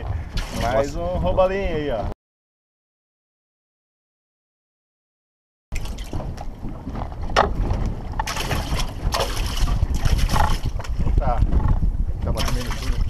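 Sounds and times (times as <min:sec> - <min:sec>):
water splashing against boat: 0:00.0 - 0:01.9, 0:05.7 - 0:13.0
heavy low rumble: 0:00.0 - 0:02.2, 0:05.8 - 0:13.0
wind on microphone: 0:00.0 - 0:02.2, 0:05.8 - 0:13.0.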